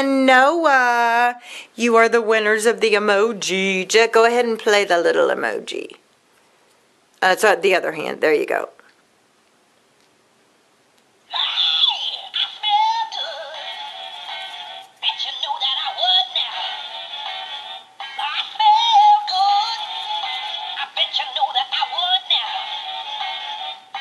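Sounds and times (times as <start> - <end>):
tinny toy speaker song: 11.3 - 24.0.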